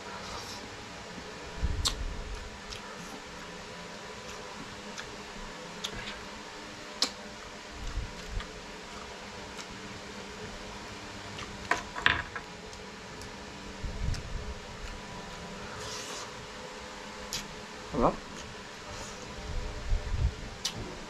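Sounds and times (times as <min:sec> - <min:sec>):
soft chewing: 0:04.2 - 0:05.2, 0:14.0 - 0:16.4.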